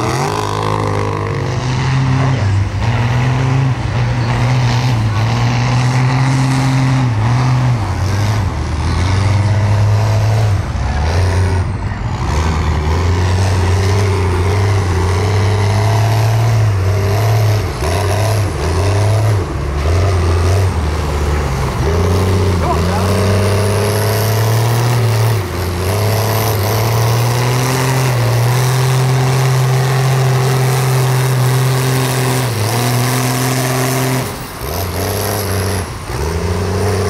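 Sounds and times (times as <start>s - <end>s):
truck engine revving: 0.0s - 37.0s.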